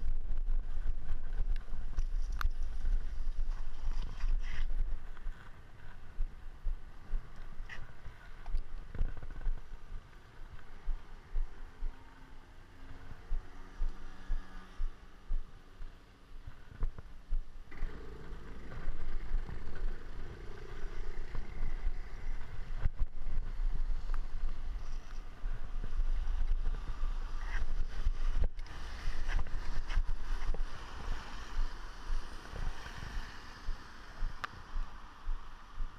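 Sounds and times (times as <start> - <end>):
wind buffeting microphone: 0.0 - 12.0, 14.3 - 35.9
tyres hissing on wet road: 28.7 - 34.2.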